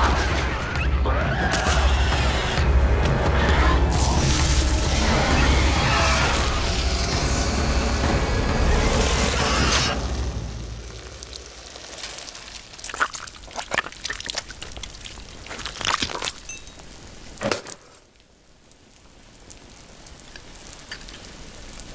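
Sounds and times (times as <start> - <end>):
sharp clicks and cracks: 19.4 - 21.9.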